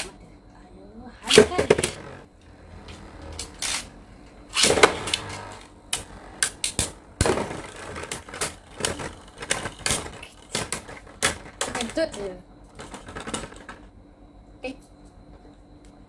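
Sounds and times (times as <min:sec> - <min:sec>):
spinning tops whirring: 0:01.2 - 0:13.9
spinning top launch: 0:03.3 - 0:11.9
spinning tops clicking together: 0:04.5 - 0:12.2.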